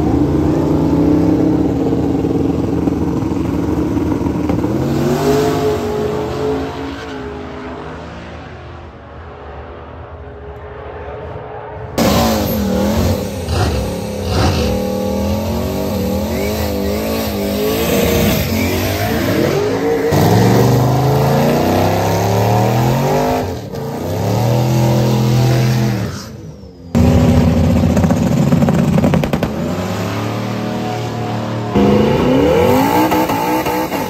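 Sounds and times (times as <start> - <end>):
drag car engines revving: 0.0 - 34.0
tyres spinning in a burnout: 11.5 - 34.0.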